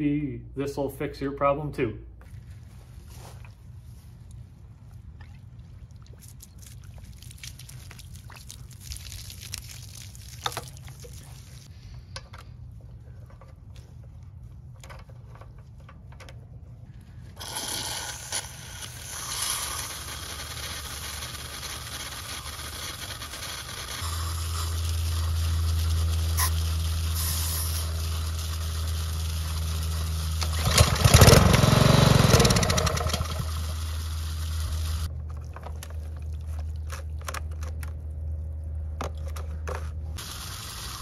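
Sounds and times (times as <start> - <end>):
steady low hum: 0.0 - 30.9
hose clicks and scrapes: 35.2 - 38.0
hiss of rushing water: 40.2 - 41.0.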